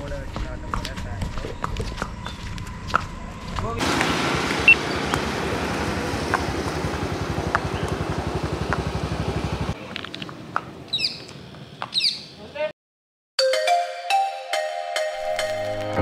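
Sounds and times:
motorcycle engine throbbing: 0.0s - 9.8s
birds chirping: 0.0s - 12.7s
outdoor background: 0.0s - 12.8s.

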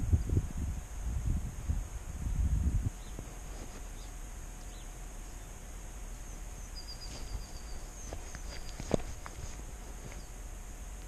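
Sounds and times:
steady high-pitched hiss: 0.0s - 11.0s
bird chirps: 3.0s - 3.2s, 3.9s - 5.6s, 6.2s - 9.0s.

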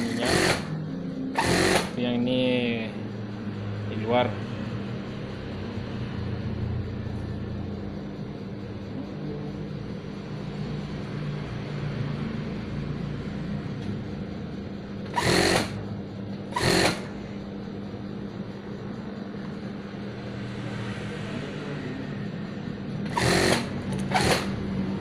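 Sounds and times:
sewing machine stitching: 0.0s - 0.7s, 1.4s - 2.0s, 15.1s - 15.8s, 16.5s - 17.1s, 23.0s - 24.6s
sewing machine motor humming: 0.0s - 2.0s, 15.0s - 15.8s, 16.5s - 17.2s, 23.0s - 24.8s.

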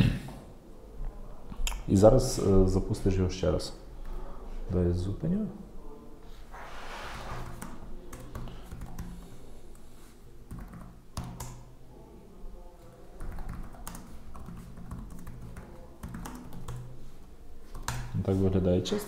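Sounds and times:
computer keyboard typing: 7.4s - 9.8s, 10.5s - 11.7s, 13.2s - 17.0s, 17.7s - 18.2s.

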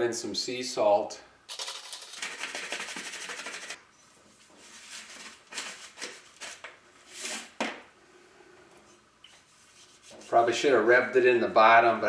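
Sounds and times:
salt shaken from canister: 1.5s - 3.8s.

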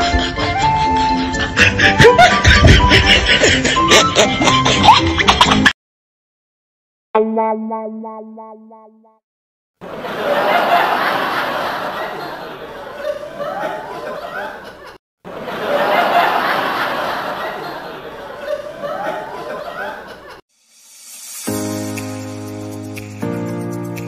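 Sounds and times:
laughter: 0.0s - 5.8s, 9.8s - 20.4s.

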